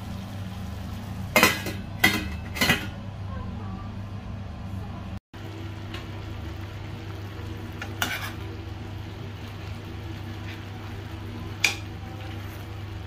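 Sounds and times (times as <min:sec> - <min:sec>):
chicken sizzling in a pan: 0:00.0 - 0:02.0, 0:05.4 - 0:13.0
metal spoon scraping pan: 0:07.8 - 0:08.5.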